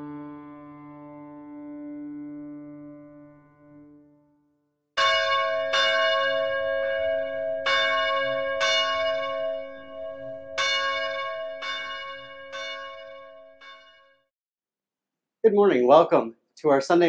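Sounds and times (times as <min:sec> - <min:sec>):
church bell ringing: 0:05.0 - 0:14.2.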